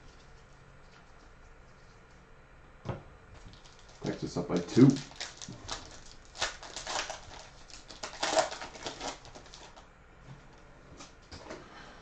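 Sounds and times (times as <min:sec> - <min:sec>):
foil wrapper crinkling: 0:03.4 - 0:09.8.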